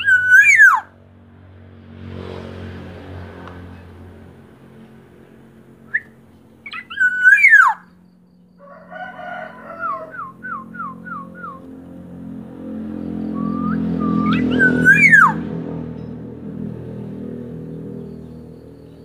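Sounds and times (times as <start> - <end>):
bird fluty whistled song: 0.0 - 0.8, 5.9 - 8.6, 9.8 - 11.7, 13.2 - 15.5
low hum: 0.0 - 19.0.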